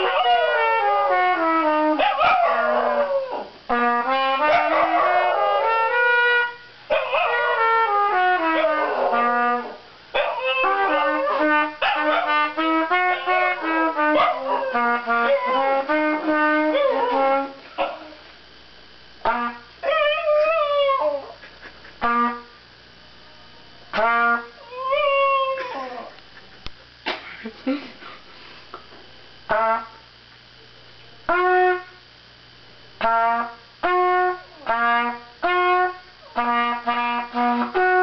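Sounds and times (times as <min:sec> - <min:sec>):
small dog howling: 0:00.0 - 0:00.9, 0:10.2 - 0:12.3, 0:19.8 - 0:21.4, 0:24.6 - 0:26.2
trumpet playing held notes: 0:00.0 - 0:18.2, 0:19.2 - 0:21.2, 0:22.0 - 0:22.6, 0:23.9 - 0:26.0, 0:29.5 - 0:30.0, 0:31.3 - 0:32.0, 0:33.0 - 0:38.0.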